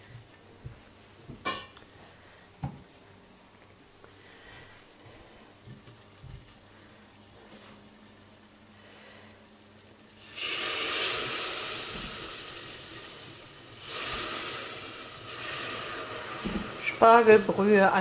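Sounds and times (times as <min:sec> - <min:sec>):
broth hissing in hot roux: 0:10.1 - 0:18.0.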